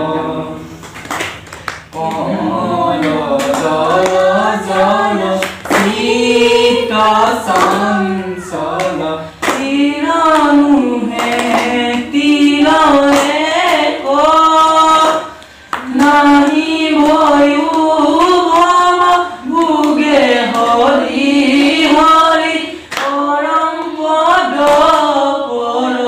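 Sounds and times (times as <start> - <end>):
group singing a hymn unaccompanied: 0.0 - 1.0, 1.9 - 26.0.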